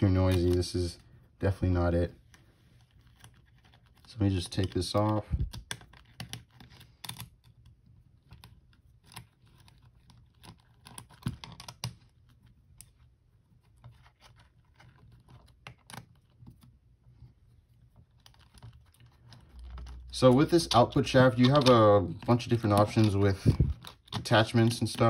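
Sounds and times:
small clicks and taps of parts: 2.2 - 13.0.

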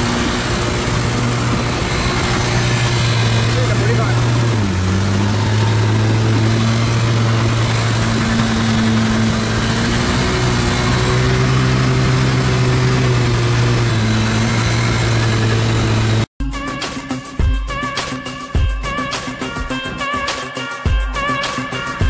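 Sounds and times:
motorcycle engine running: 0.0 - 16.7.

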